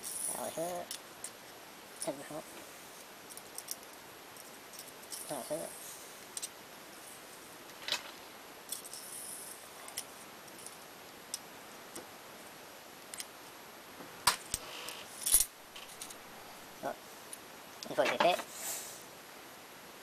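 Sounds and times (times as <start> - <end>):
small metal parts clinking: 3.3 - 5.4, 7.7 - 10.8, 14.5 - 16.2.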